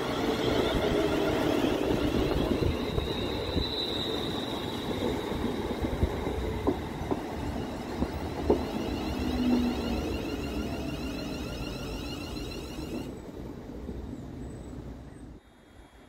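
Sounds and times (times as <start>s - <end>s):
train wheels rumbling on rails: 0.0s - 14.5s
high electric whine: 8.7s - 13.1s.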